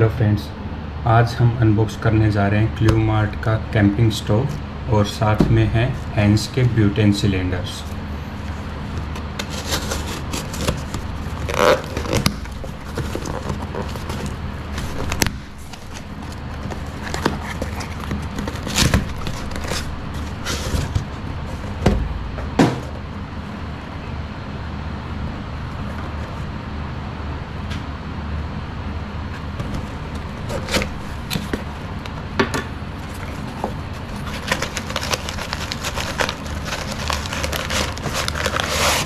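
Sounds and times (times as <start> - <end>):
packaging being handled: 7.6 - 21.9, 29.4 - 32.3, 33.0 - 39.0.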